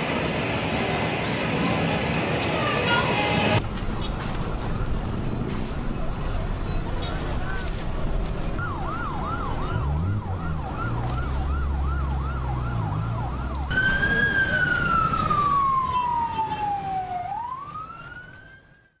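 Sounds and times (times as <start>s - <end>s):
emergency siren yelp and wail: 8.5s - 19.0s.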